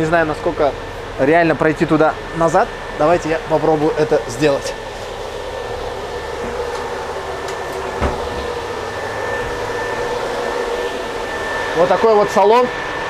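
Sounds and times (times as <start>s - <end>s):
air-conditioning blower hum: 0.0s - 13.0s.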